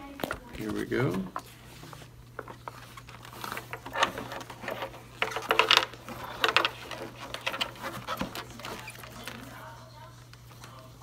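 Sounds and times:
leather rubbing and knocking: 0.6s - 9.4s.

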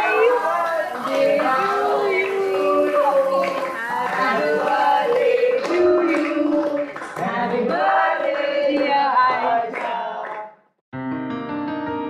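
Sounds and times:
group of people singing: 0.0s - 10.6s
piano music: 11.0s - 12.0s.

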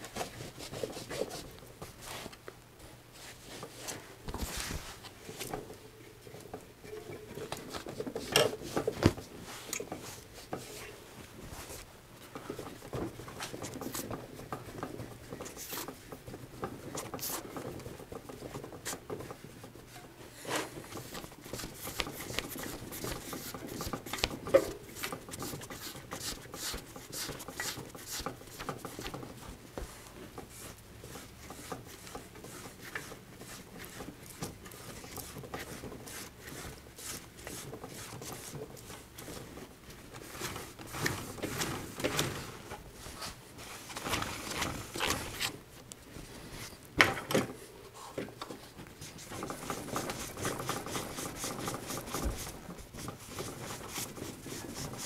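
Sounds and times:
cloth rag wiping bicycle wheel: 16.8s - 41.8s, 49.0s - 55.0s.

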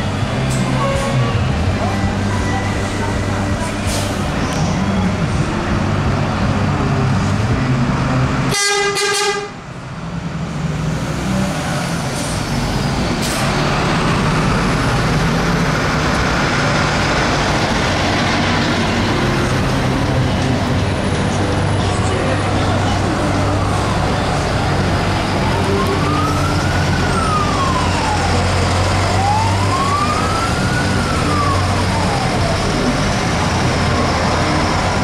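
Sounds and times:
bus driving past: 0.0s - 8.5s, 9.5s - 35.0s
bus diesel engines running: 0.0s - 35.0s
bus horn toot: 0.8s - 1.5s, 8.5s - 9.6s.

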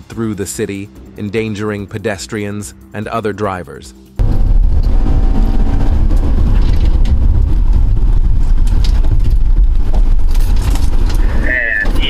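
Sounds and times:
car engine and road noise: 4.0s - 12.0s.

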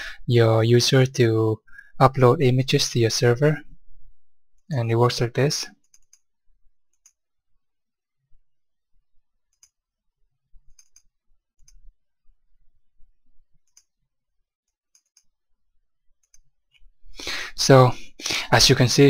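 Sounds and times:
computer mouse clicks: 5.8s - 6.3s, 6.9s - 7.2s, 9.5s - 9.8s, 10.7s - 11.9s, 14.9s - 15.3s.

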